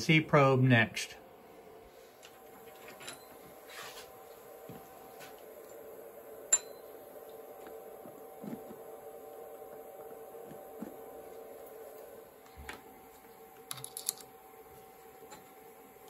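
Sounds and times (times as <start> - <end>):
steady hum: 0.0 - 16.0
metallic click with ring: 6.5 - 6.8.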